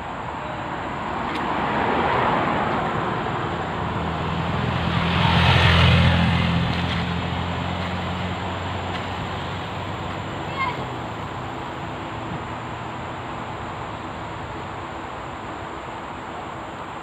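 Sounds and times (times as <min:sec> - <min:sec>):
car driving past: 0:01.2 - 0:14.8.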